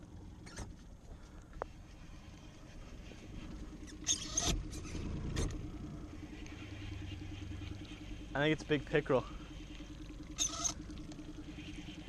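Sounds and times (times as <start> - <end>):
fishing reel whirring: 3.8 - 5.1, 9.8 - 12.0.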